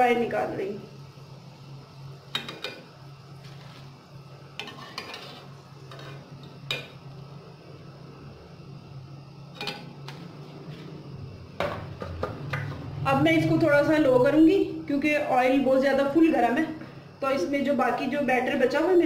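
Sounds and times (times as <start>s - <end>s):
steady low hum: 0.0s - 19.0s
metal spatula scraping a wok: 3.4s - 4.0s, 4.6s - 6.8s.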